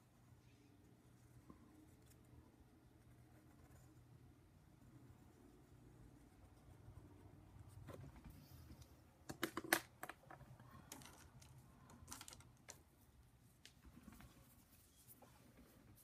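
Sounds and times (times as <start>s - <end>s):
pencil clicks and taps on desk: 9.2s - 12.8s.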